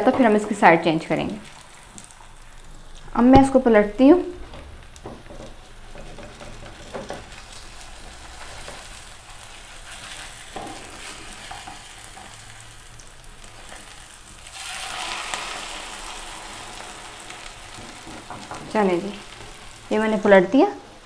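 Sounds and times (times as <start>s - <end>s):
omelette sizzling in oil: 1.2s - 20.4s
spatula scraping pan: 5.9s - 12.4s.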